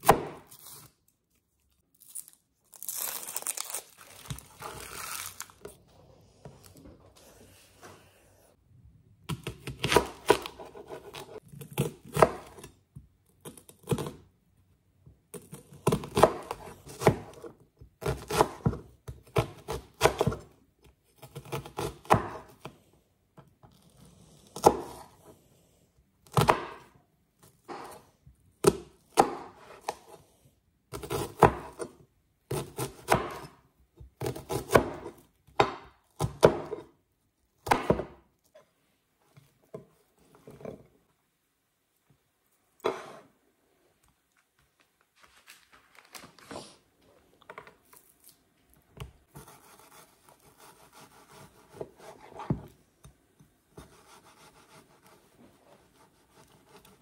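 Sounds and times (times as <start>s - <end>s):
knife chopping on cutting board: 0.0s - 0.5s, 9.3s - 12.7s, 21.4s - 22.5s, 26.3s - 26.9s, 28.6s - 30.1s, 31.0s - 31.9s, 32.5s - 33.6s, 34.2s - 36.9s, 37.6s - 38.2s, 49.3s - 52.8s.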